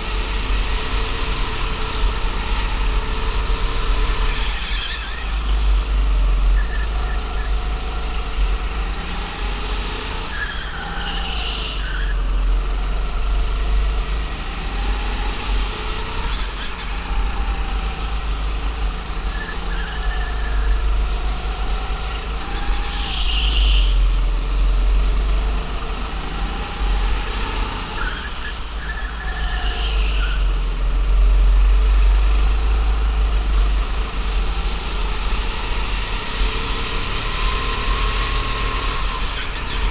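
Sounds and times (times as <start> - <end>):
go-kart engine: 0.0 - 39.9
tyre squeals: 3.7 - 7.7, 10.1 - 12.4, 19.1 - 20.9, 22.5 - 24.1, 27.8 - 30.6.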